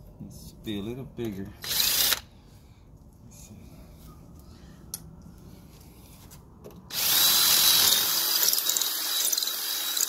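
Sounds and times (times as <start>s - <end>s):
cordless drill boring into brick: 1.6s - 2.2s, 6.9s - 10.0s.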